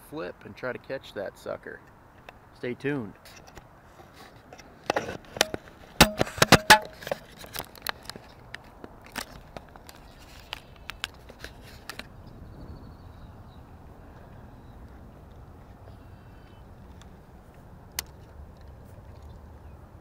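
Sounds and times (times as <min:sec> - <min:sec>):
faint outdoor background: 0:00.0 - 0:20.0
handling clicks and knocks: 0:04.4 - 0:12.1, 0:16.8 - 0:19.4.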